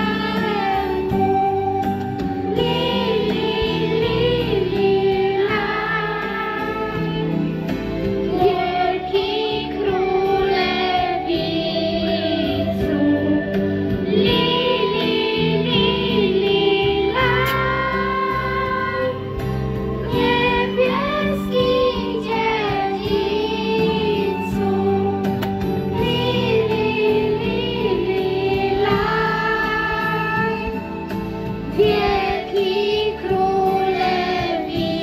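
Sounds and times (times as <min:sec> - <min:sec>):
children singing a carol: 0:00.0 - 0:07.5, 0:08.2 - 0:19.3, 0:20.0 - 0:35.0
instrumental accompaniment: 0:00.0 - 0:35.0.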